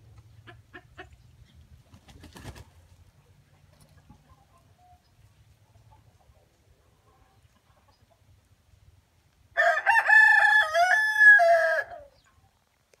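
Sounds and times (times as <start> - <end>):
rooster crowing: 9.6 - 12.1.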